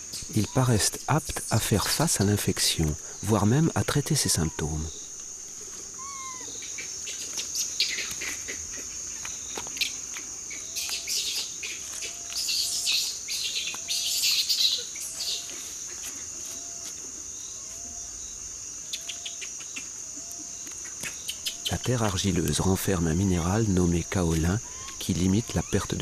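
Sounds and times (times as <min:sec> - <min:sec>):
low arching call: 0:00.0 - 0:08.8, 0:23.4 - 0:26.0
birds calling: 0:00.0 - 0:26.0
insects shrilling: 0:00.0 - 0:26.0.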